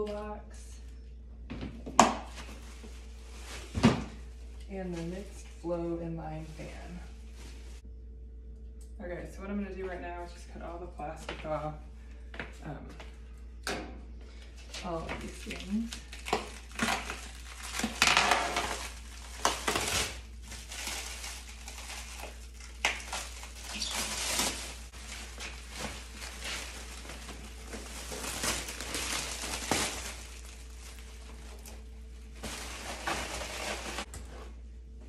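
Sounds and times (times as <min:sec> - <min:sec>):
plastic wrap crinkling: 0:14.8 - 0:34.1
scissors cutting plastic wrap: 0:15.4 - 0:24.6.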